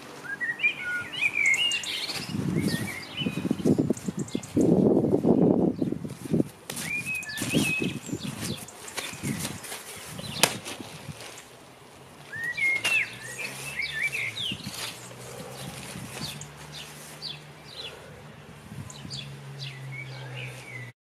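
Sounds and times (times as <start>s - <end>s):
rustling plastic tarpaulin: 0.0s - 5.2s, 5.8s - 17.5s
birds chirping: 0.0s - 21.0s
body landing on tarp: 8.4s - 11.5s.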